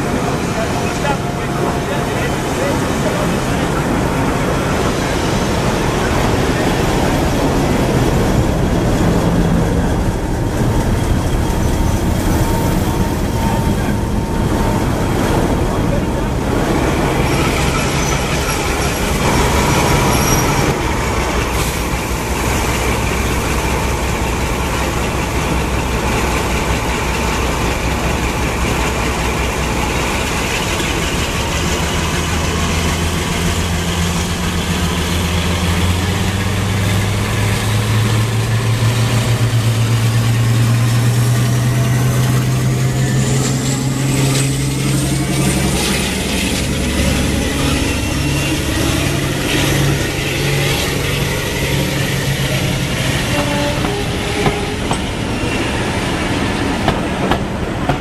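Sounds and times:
diesel locomotive engines running: 0:00.0 - 0:58.0
rising whine: 0:41.4 - 0:58.0.

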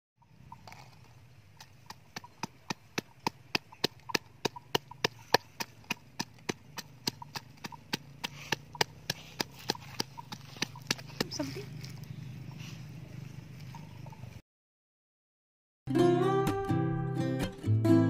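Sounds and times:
wooden pestle pounding in mortar: 0:01.9 - 0:11.4.

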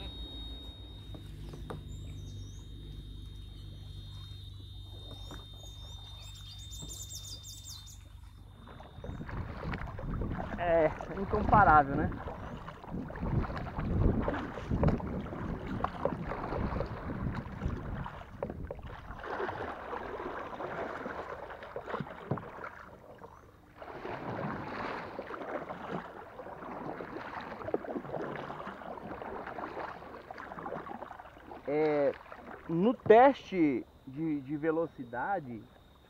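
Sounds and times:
paddle splashing in water: 0:03.2 - 0:33.6
wind on microphone: 0:08.6 - 0:19.6.

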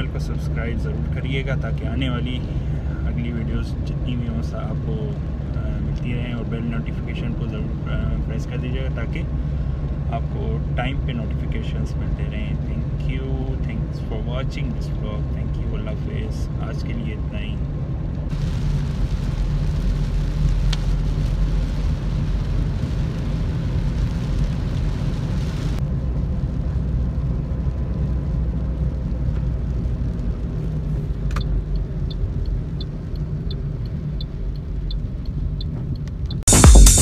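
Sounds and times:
engine and tyre rumble: 0:00.0 - 0:36.6
light regular ticking: 0:31.1 - 0:36.5
click: 0:31.3 - 0:31.8.

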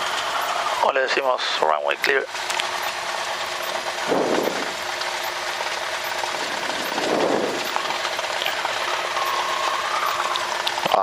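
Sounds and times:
aircraft engine hum from cabin: 0:02.3 - 0:11.0.

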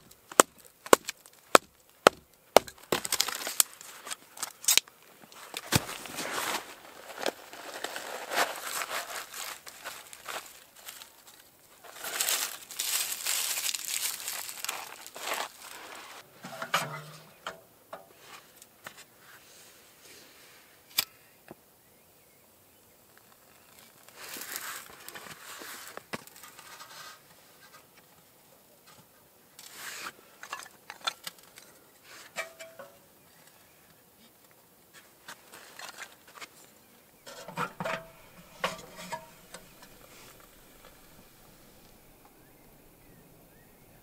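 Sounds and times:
wood shavings rustling: 0:00.0 - 0:17.2, 0:23.6 - 0:27.2, 0:37.3 - 0:42.9.

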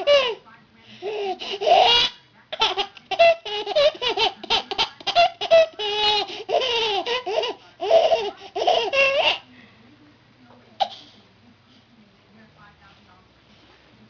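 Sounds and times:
baby laughing: 0:00.0 - 0:00.4, 0:01.0 - 0:09.5.

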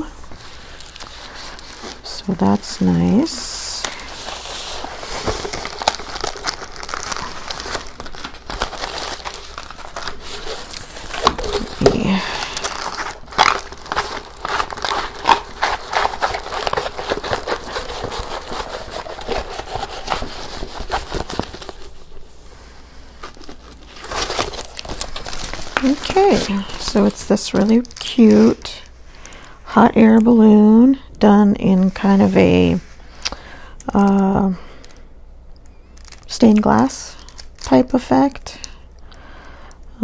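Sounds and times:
canvas and wrapping rustling: 0:00.0 - 0:28.9.

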